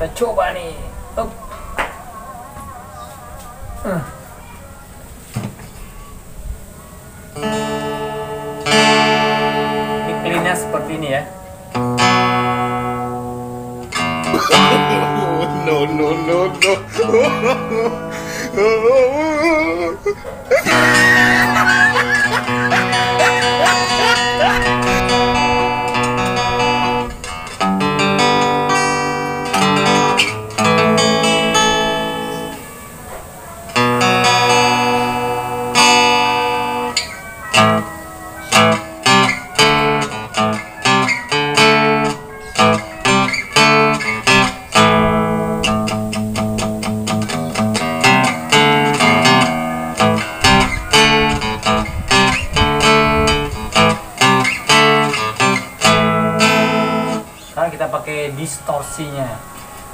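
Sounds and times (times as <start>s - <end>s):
electric guitar melody: 0.8s - 59.9s.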